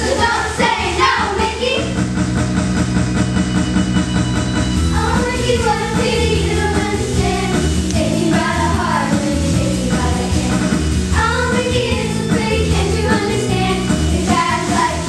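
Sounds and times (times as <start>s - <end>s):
upbeat pop music: 0.0s - 15.0s.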